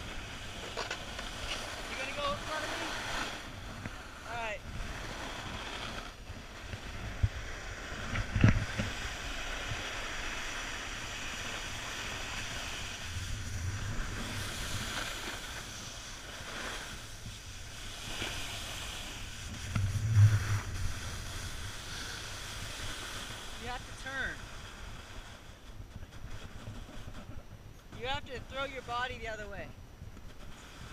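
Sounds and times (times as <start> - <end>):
skis hissing on snow: 0.0 - 25.5, 30.4 - 30.9
wind on microphone: 0.0 - 30.9
low thumps: 12.9 - 15.2, 19.4 - 22.3.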